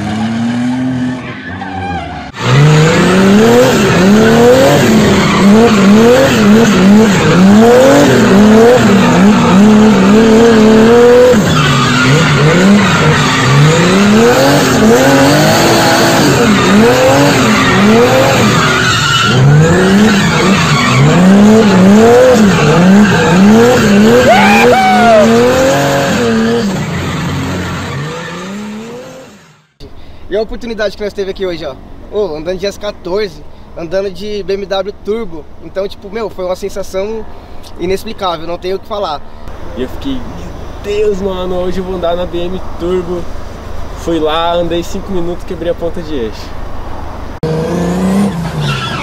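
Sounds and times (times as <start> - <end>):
tyre squeal: 0.0 - 2.9, 8.7 - 29.2, 48.1 - 49.0
car engine revving: 0.0 - 29.8, 46.9 - 49.0.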